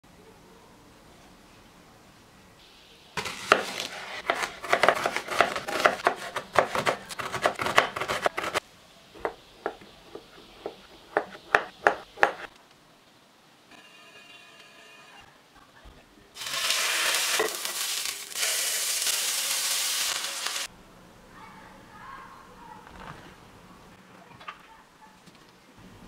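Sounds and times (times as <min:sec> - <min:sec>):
knife chopping on cutting board: 0:03.2 - 0:08.6, 0:10.6 - 0:12.5.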